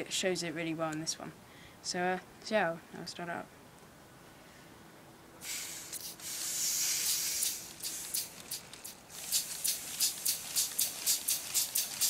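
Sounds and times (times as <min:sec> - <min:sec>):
pneumatic engine air hissing and puffing: 0:05.4 - 0:12.0.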